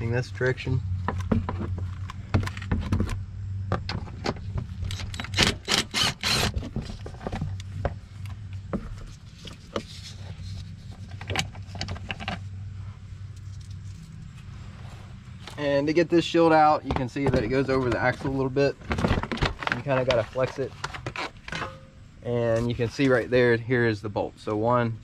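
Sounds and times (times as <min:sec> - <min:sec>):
steady low hum: 0:00.0 - 0:25.0
impact driver bursts: 0:04.9 - 0:06.6.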